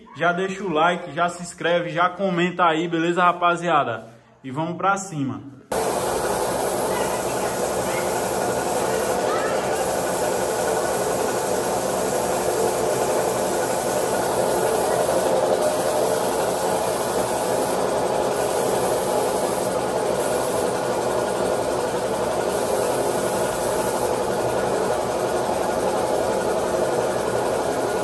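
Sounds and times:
air compressor running: 5.7 - 28.0
paint spray gun hissing: 5.7 - 28.0.

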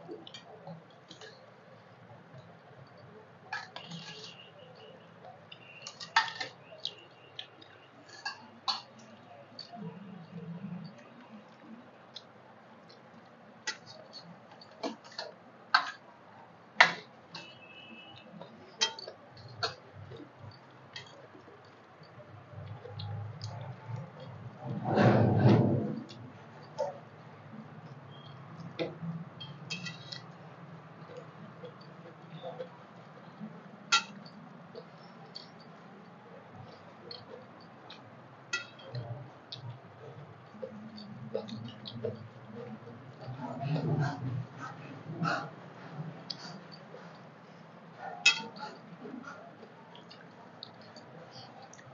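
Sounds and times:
hand mixing food on a plate: 0.0 - 51.9
spoon clinking on steel plates: 2.9 - 9.2, 16.8 - 19.8, 29.4 - 30.3, 33.9 - 34.4, 36.6 - 39.1, 48.2 - 48.8.

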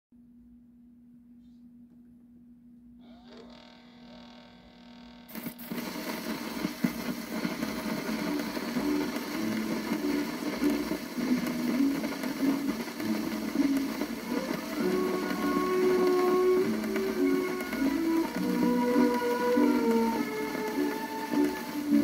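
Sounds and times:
record surface hiss and crackle: 0.2 - 22.0.

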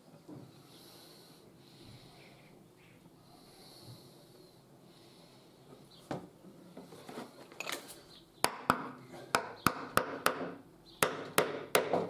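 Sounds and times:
soft brushing and handling: 5.6 - 8.1
hammer striking wooden wedges: 8.4 - 12.0.

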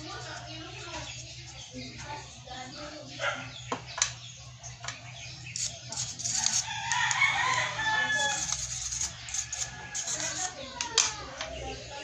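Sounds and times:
circuit board clicks and scratches: 4.8 - 11.1
rooster crowing: 6.5 - 8.7.

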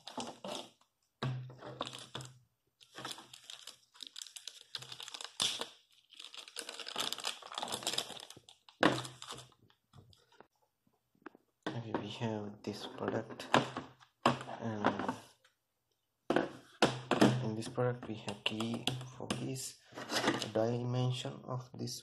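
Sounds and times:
plastic sleeve crinkling: 1.7 - 10.4.

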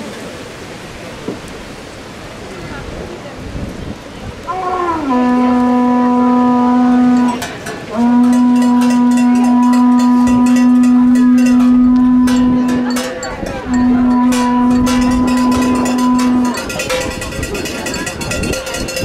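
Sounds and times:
horn blowing low notes: 4.5 - 19.0
cowbells clanking: 7.0 - 19.0.

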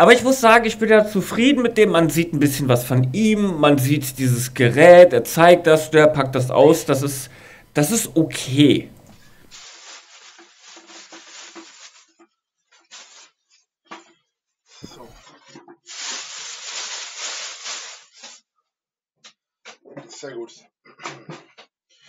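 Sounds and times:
plastic film rustling: 9.1 - 13.6, 14.8 - 18.4.

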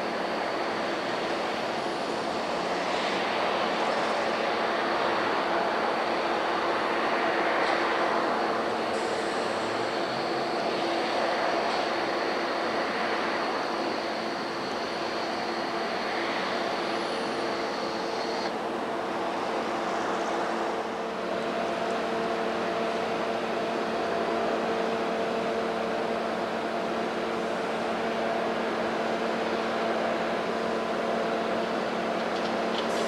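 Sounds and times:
diesel train engines humming: 0.0 - 33.0
faint high whine: 0.0 - 33.0.

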